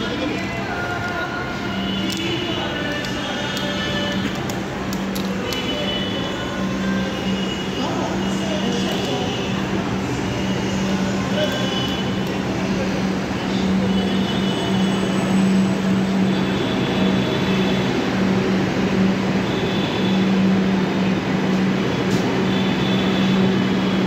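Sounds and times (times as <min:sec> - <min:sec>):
metro train hum and rumble: 0:00.0 - 0:24.0
high thin train squeals: 0:13.6 - 0:16.0.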